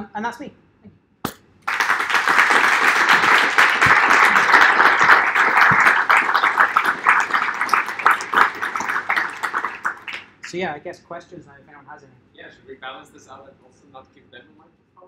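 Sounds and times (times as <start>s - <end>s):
audience applauding: 1.6s - 10.5s.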